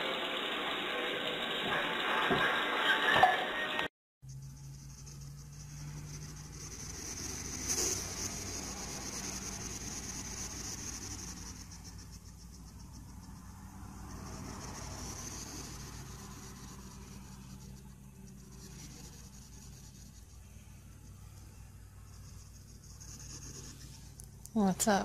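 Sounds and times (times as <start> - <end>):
steady low hum: 4.2 - 25.0.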